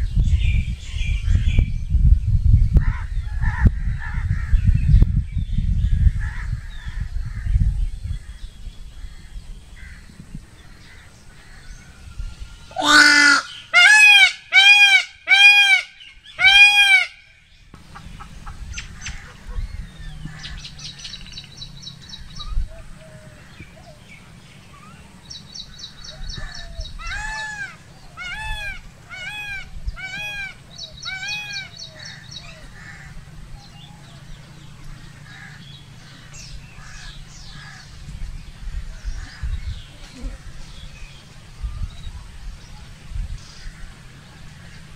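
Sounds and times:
low background rumble: 0.0 - 44.9
peacock honking calls: 10.8 - 21.2, 22.1 - 38.0.

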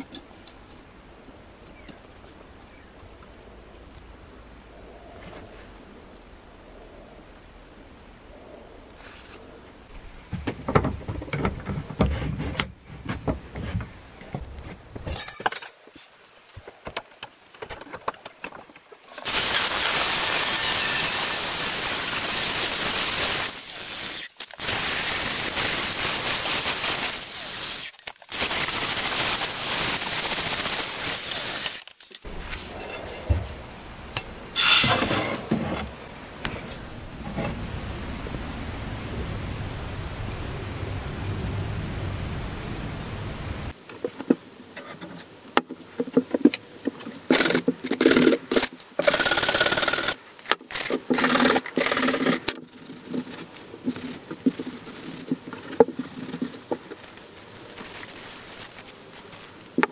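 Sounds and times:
metal scraping and clinking: 15.0 - 15.8, 31.6 - 33.6, 34.2 - 35.8.

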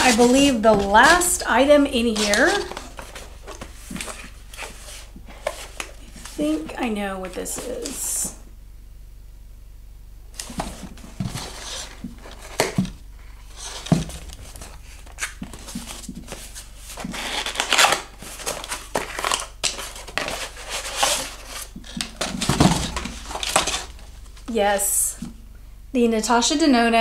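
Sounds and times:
cardboard box rustling and tearing: 0.0 - 6.4, 10.4 - 24.1.

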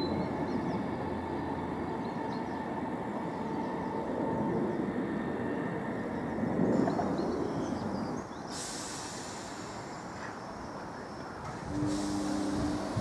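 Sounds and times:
steady outdoor rumble: 0.0 - 13.0
hiss: 8.4 - 10.4, 11.4 - 13.0.

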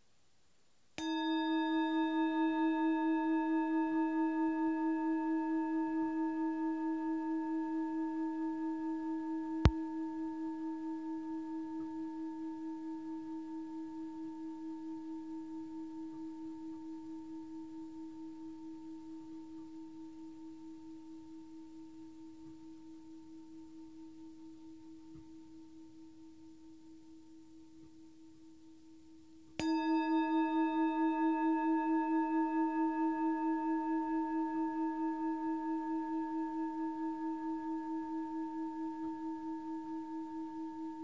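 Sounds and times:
metal singing bowl ringing: 1.0 - 18.0, 29.6 - 41.0.

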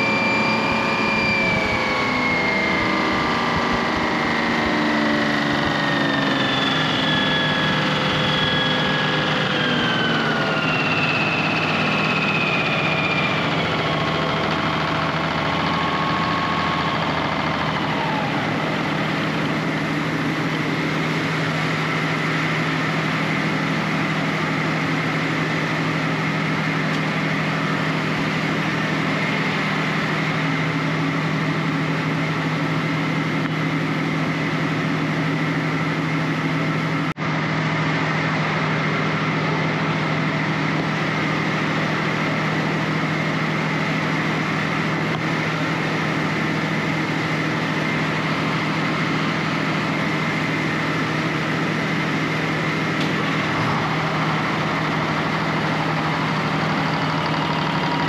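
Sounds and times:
engine running steadily: 0.0 - 58.0.

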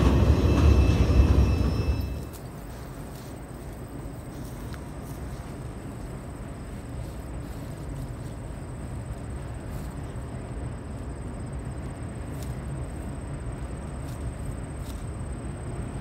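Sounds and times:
train rumbling: 0.0 - 16.0.

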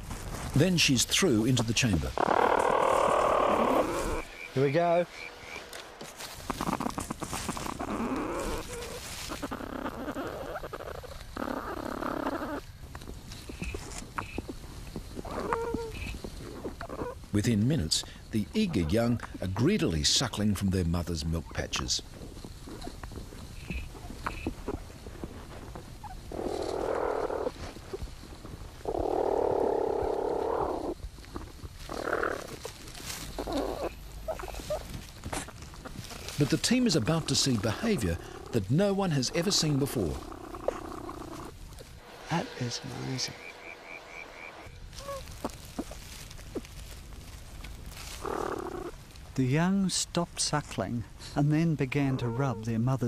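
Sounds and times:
scratching and rustling of nest: 0.0 - 17.3, 21.6 - 43.4, 44.8 - 49.4
rough grunting calls: 1.2 - 12.7, 15.2 - 19.5, 22.6 - 49.3, 51.3 - 52.8
platypus rasping bursts: 36.8 - 45.2.

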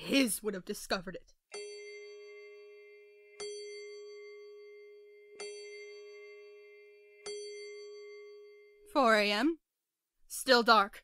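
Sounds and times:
clock bell striking: 1.6 - 8.5.

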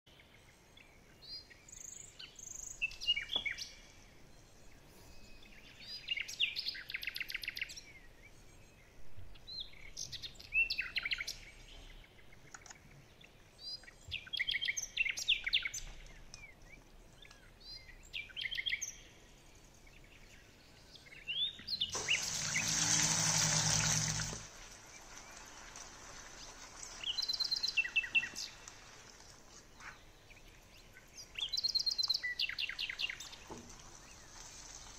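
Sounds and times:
small birds chirping: 0.1 - 34.9
noisy burst with low hum: 21.9 - 24.5.

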